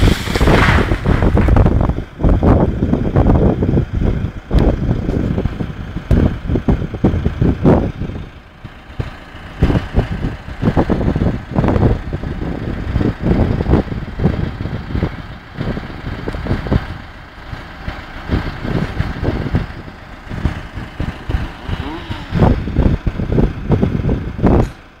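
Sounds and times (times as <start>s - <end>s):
low thumps: 0.0s - 3.4s
harvester engine under load: 0.0s - 25.0s.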